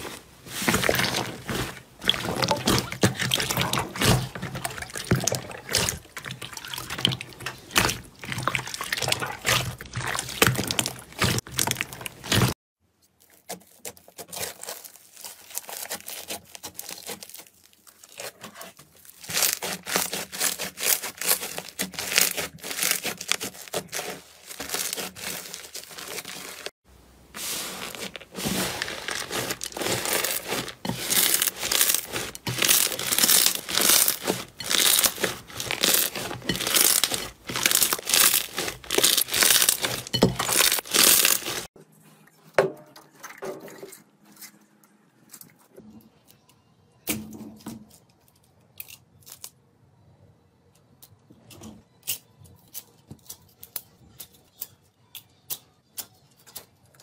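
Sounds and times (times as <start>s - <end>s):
slime crackling and popping: 0.7s - 12.5s, 19.0s - 26.7s, 28.0s - 41.7s.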